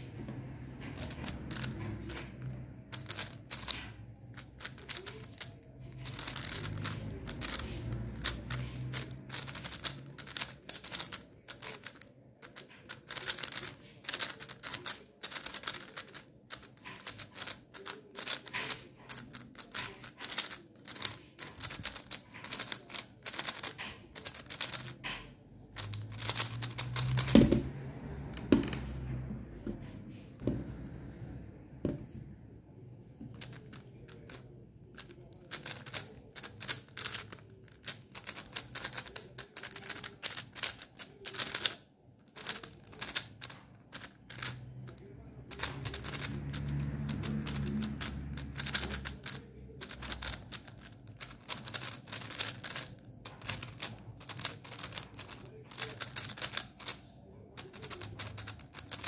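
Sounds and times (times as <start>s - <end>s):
puzzle cube plastic clicks: 0.9s - 27.6s, 33.3s - 59.0s.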